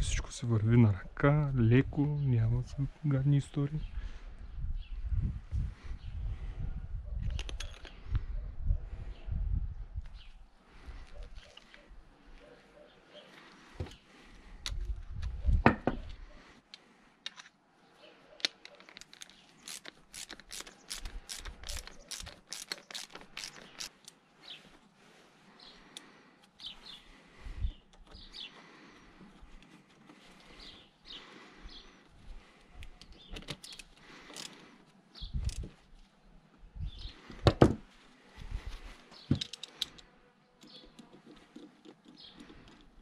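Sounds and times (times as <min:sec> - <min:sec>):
metal parts clicking and knocking: 0:07.3 - 0:08.0, 0:18.5 - 0:24.2, 0:32.9 - 0:34.6, 0:39.3 - 0:40.0
birds chirping: 0:10.1 - 0:14.5, 0:21.6 - 0:24.8, 0:25.5 - 0:37.4, 0:38.8 - 0:43.0.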